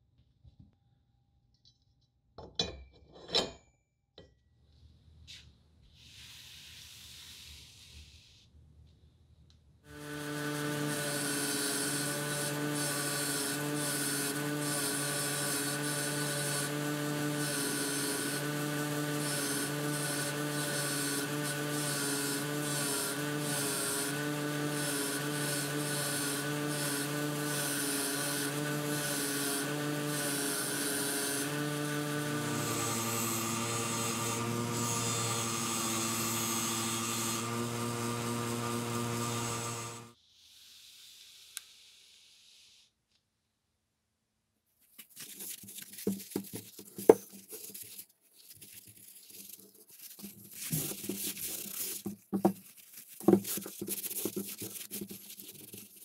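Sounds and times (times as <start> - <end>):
bench grinder grinding steel: 9.9 - 40.2.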